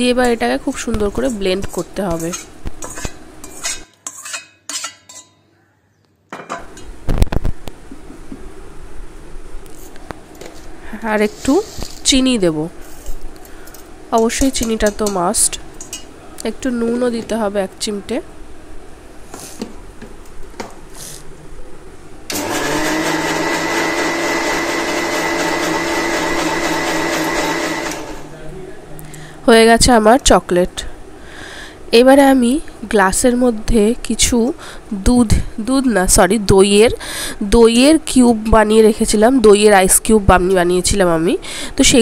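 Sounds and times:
spoon scraping metal pot: 0:00.2 - 0:05.4
mixer grinder whirring: 0:22.3 - 0:28.4.

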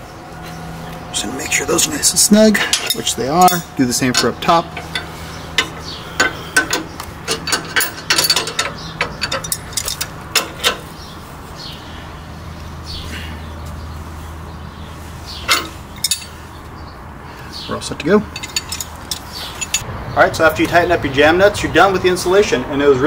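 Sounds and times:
wrenches clinking on metal: 0:01.4 - 0:10.9, 0:15.4 - 0:16.4, 0:18.1 - 0:19.8
sharp metal clicks: 0:02.6 - 0:10.9, 0:18.3 - 0:19.8.

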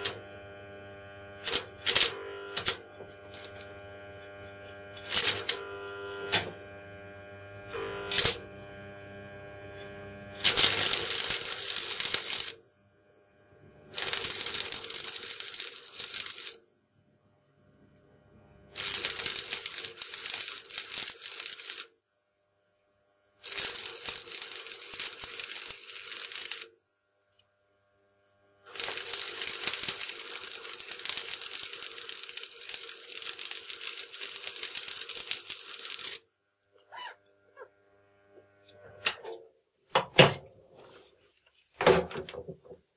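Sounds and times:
welding arc crackling and sizzling: 0:00.0 - 0:12.6, 0:13.3 - 0:16.6, 0:18.7 - 0:21.9, 0:23.4 - 0:26.7, 0:28.6 - 0:36.3.

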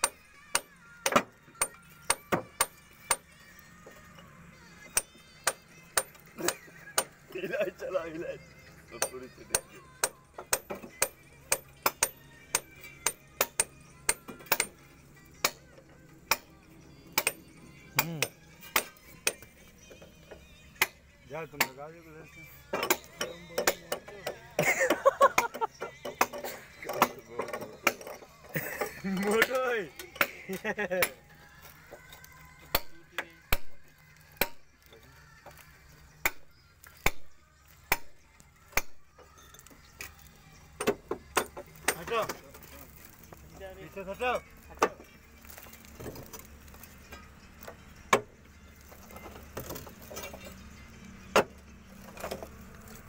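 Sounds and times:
sharp metallic clinks and knocks: 0:08.9 - 0:21.0, 0:22.7 - 0:33.0, 0:39.2 - 0:53.0.

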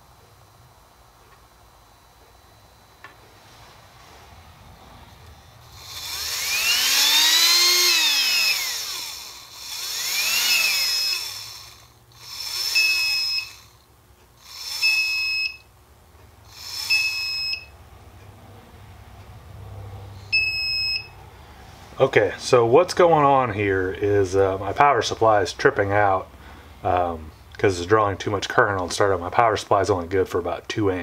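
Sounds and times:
electric motor whirring: 0:05.1 - 0:15.6, 0:16.4 - 0:17.7
power supply beeping: 0:12.4 - 0:13.6, 0:14.6 - 0:15.7, 0:16.7 - 0:17.8, 0:20.2 - 0:21.2.

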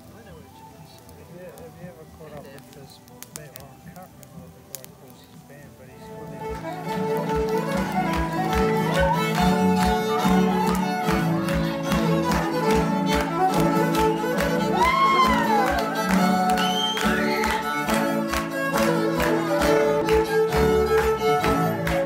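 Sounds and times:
live band fiddle tune: 0:00.0 - 0:22.0
person whooping: 0:14.5 - 0:17.7.

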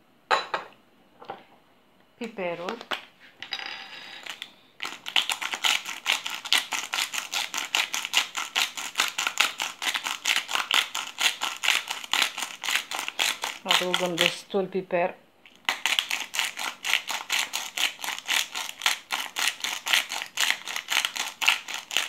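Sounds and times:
pepper mill grinding: 0:04.2 - 0:14.5, 0:15.5 - 0:22.0.

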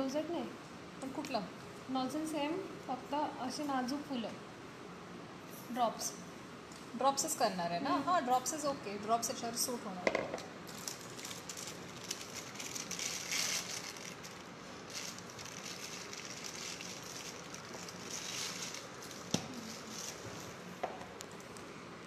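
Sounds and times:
plastic piping bag crinkling: 0:10.7 - 0:20.6.

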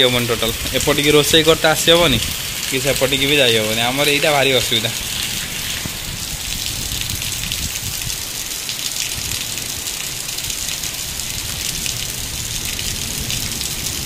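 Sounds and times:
heavy rain pouring: 0:00.0 - 0:14.0.

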